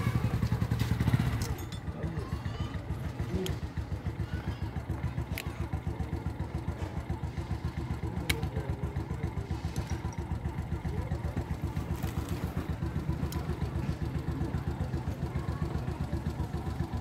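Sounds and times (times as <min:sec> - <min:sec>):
small engine idling: 0:00.0 - 0:17.0
metallic chain clicks: 0:01.2 - 0:01.9.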